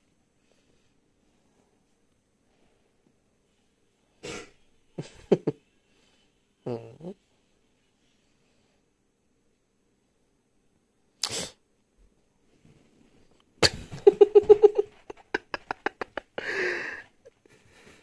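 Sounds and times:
person sneezing: 4.2s - 4.6s, 11.2s - 11.6s.

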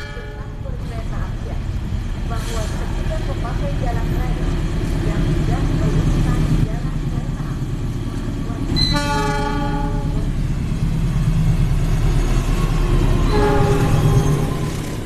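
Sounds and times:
diesel locomotive engines rumbling: 0.0s - 15.0s
train horn blasts: 8.8s - 10.3s, 13.2s - 14.7s.

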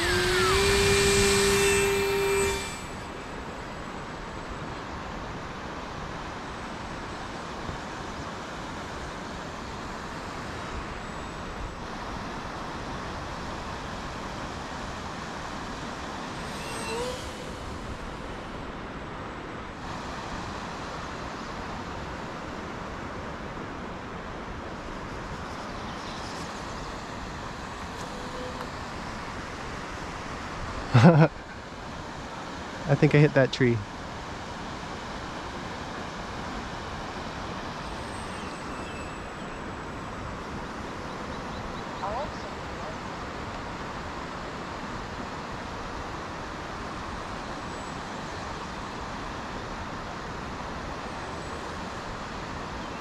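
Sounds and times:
rising whistle-like tone: 0.0s - 3.6s, 16.4s - 18.4s
steady outdoor noise: 0.0s - 53.0s.

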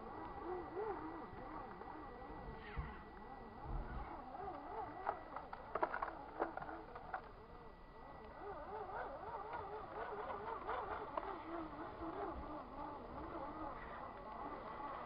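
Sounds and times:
toy car motor whining: 0.0s - 15.0s.

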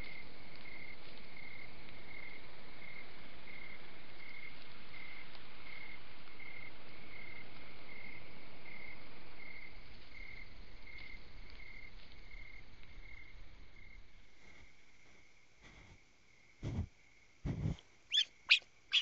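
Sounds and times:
cricket chirping: 0.0s - 19.0s
microphone hiss: 12.2s - 19.0s.

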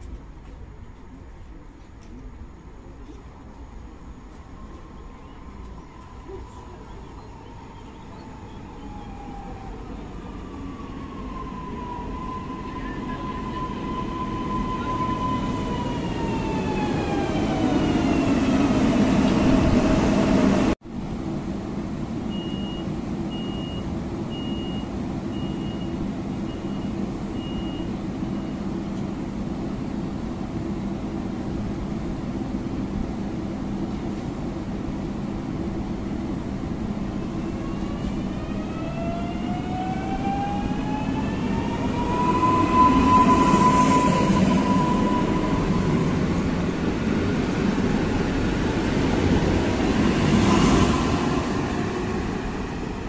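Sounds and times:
standing train hum: 0.0s - 53.0s.

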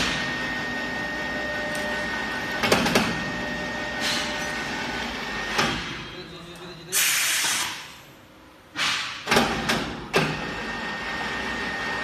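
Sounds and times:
air hiss: 6.9s - 7.9s.

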